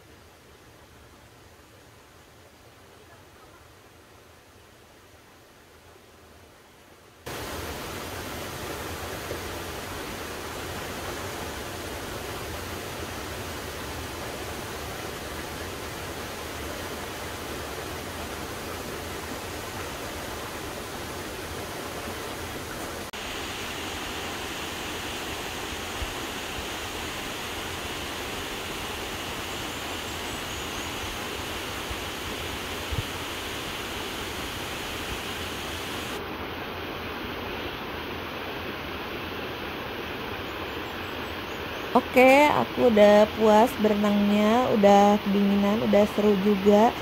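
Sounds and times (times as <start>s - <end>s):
waterfall rushing: 7.3s - 40.4s.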